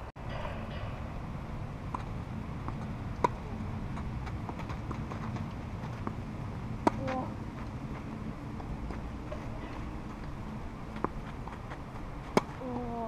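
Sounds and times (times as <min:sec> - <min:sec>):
tennis racket hitting ball: 0:01.9 - 0:08.2, 0:08.9 - 0:12.9
tennis ball bouncing: 0:01.9 - 0:13.0.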